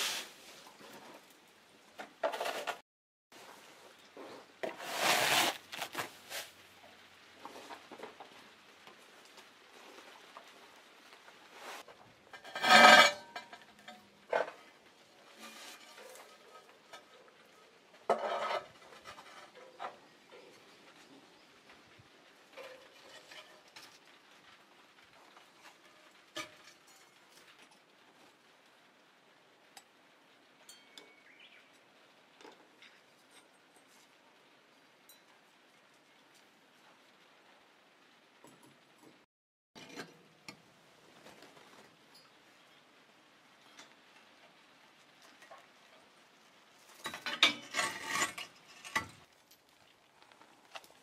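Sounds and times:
ceramic pots clinking and scraping: 11.7s - 21.2s, 46.8s - 49.3s.

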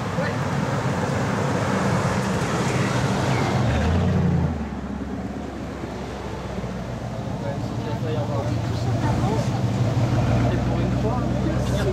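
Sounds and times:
car driving past: 0.5s - 7.8s.

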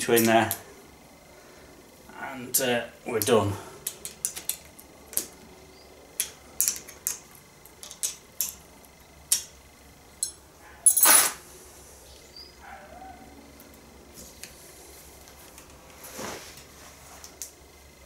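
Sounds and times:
spanner clinking on metal: 10.2s - 11.4s.

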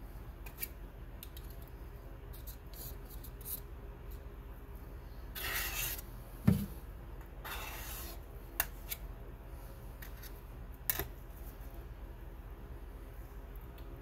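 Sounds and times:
palette knife scraping paint: 5.3s - 6.1s, 7.4s - 9.0s.

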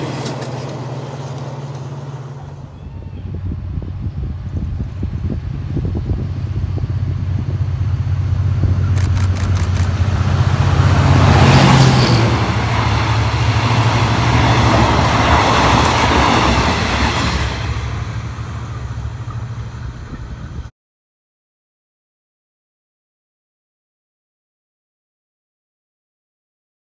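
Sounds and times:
locomotive engine drone: 0.0s - 20.7s
train wheels rumbling over rails: 0.0s - 20.7s.

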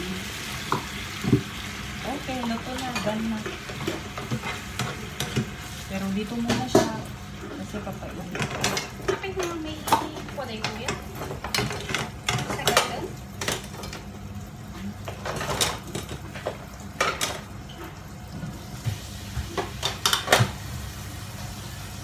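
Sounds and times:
dishes and utensils clinking: 8.3s - 14.1s, 15.0s - 18.0s.

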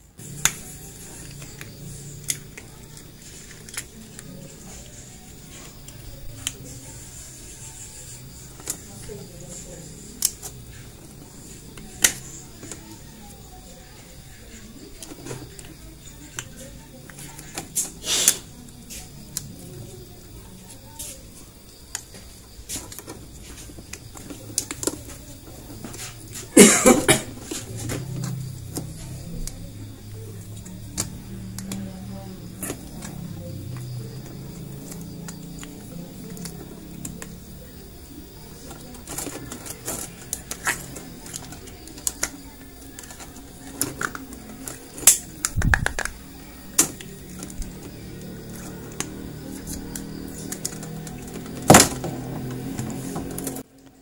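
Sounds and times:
plastic clicks and knocks: 43.0s - 47.6s.

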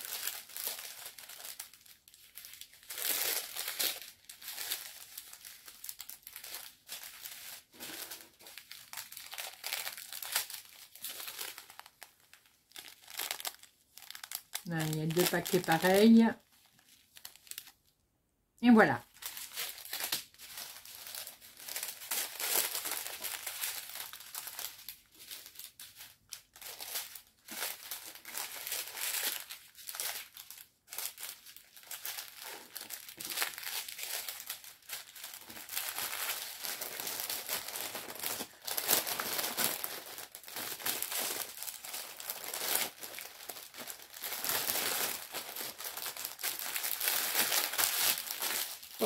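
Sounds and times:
plastic bags crinkling: 0.0s - 17.9s, 19.0s - 49.0s.

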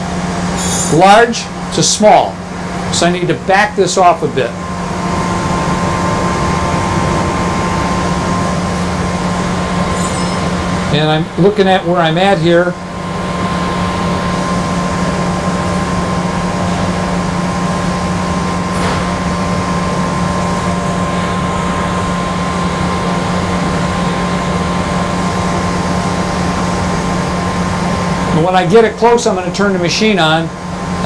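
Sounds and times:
electric machinery hum: 0.0s - 31.0s.

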